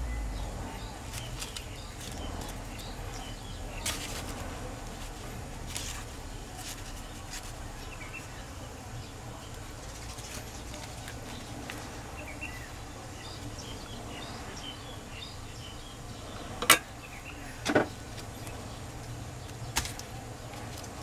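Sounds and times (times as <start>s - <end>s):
steady low hum: 0.0s - 21.0s
leaves being wrapped by hand: 0.8s - 14.1s, 17.7s - 21.0s.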